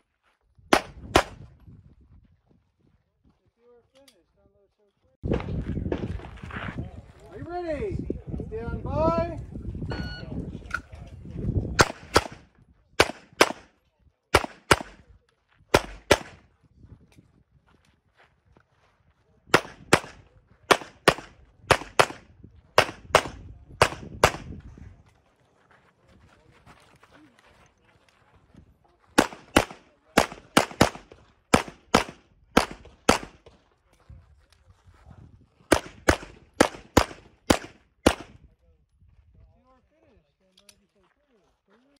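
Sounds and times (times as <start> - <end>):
pistol shots: 0.7 - 1.4, 11.8 - 13.7, 14.3 - 15.0, 15.7 - 16.4, 19.5 - 24.5, 29.2 - 33.5, 35.7 - 38.4.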